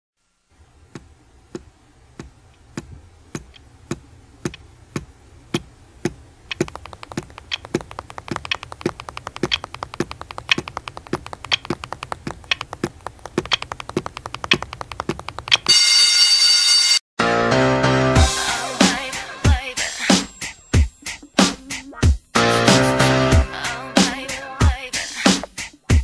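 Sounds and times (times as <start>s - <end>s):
fingers drumming on a desk: 0.9s - 15.7s
steady tapping: 0.9s - 15.7s.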